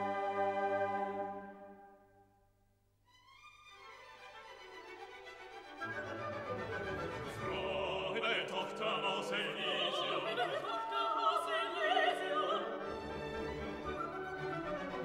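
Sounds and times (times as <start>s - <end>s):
orchestral strings: 0.0s - 2.0s, 3.1s - 15.0s
operatic singing voice: 7.2s - 12.8s.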